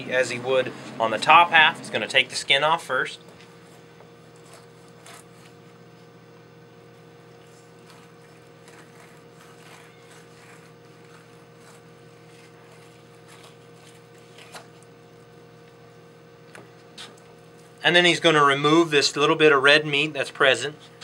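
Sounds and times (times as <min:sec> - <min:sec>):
background hum: 0:00.0 - 0:21.0
knife scraping fish skin: 0:04.3 - 0:05.6, 0:07.4 - 0:14.8.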